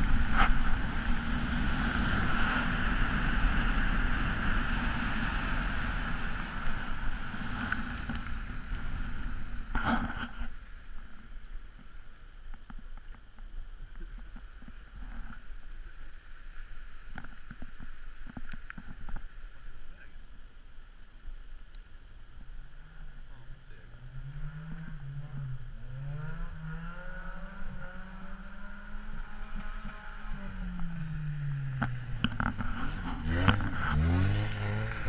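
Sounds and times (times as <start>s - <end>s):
wind rushing over microphone: 0.0s - 10.6s
car engine and tyre noise: 0.0s - 35.0s
light crackles: 6.6s - 22.6s.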